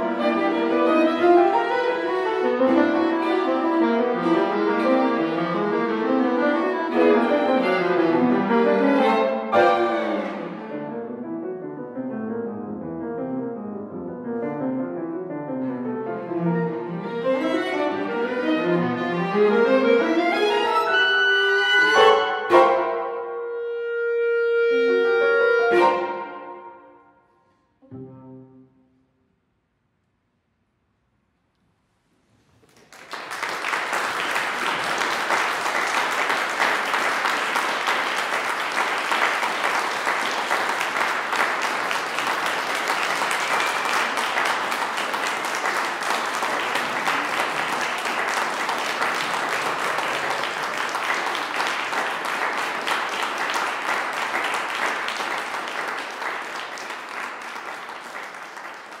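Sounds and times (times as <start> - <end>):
audience applauding: 32.6 - 59.0.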